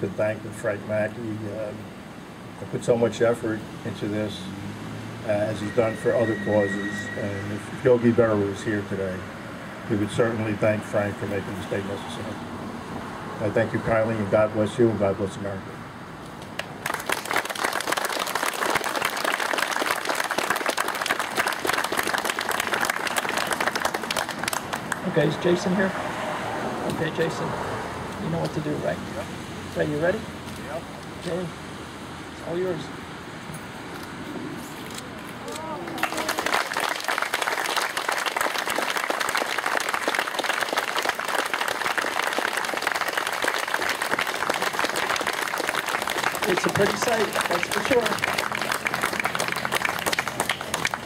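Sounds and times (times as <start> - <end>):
crowd applauding: 16.6 - 25.3, 35.8 - 51.0.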